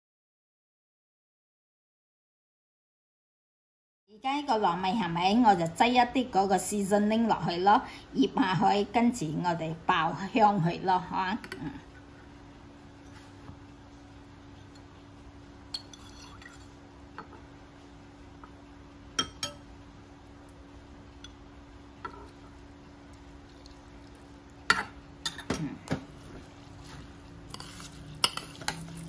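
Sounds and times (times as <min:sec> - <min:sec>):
faint steady hum: 0:04.1 - 0:29.0
metal spoon clinking against bowl: 0:19.2 - 0:19.6, 0:27.5 - 0:29.0.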